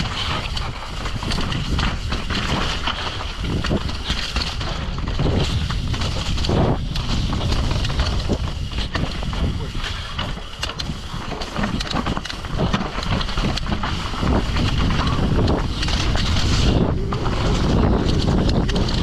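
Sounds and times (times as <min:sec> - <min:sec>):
bike rattling over bumps: 0:00.0 - 0:19.0
wind rushing over microphone: 0:00.0 - 0:19.0.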